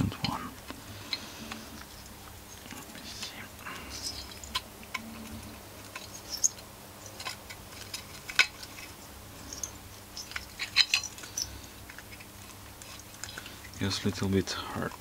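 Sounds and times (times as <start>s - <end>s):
metal parts and tools clicking: 3.8s - 13.7s.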